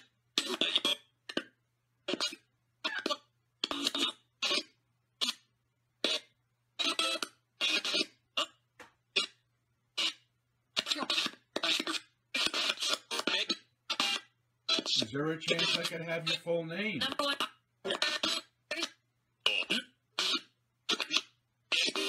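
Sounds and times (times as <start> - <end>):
chopped voice fragments from a speaker: 12.4 - 18.4.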